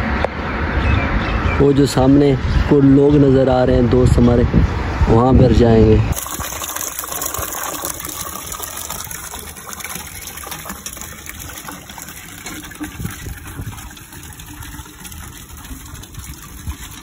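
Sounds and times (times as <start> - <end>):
water pouring into steel bucket: 6.1 - 17.0.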